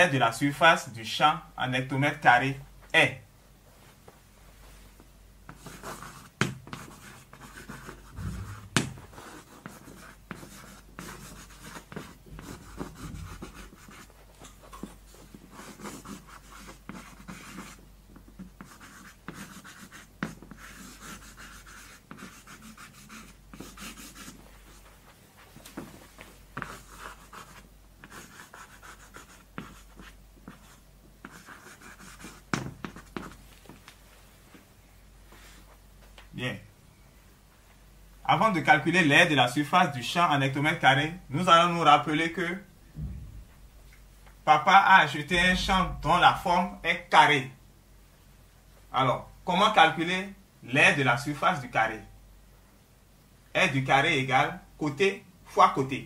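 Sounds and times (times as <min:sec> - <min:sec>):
chalk tapping on board: 0:05.5 - 0:14.1, 0:15.6 - 0:24.4, 0:26.6 - 0:33.4
chalk scratching on blackboard: 0:05.5 - 0:14.2, 0:14.8 - 0:24.9, 0:26.6 - 0:33.4.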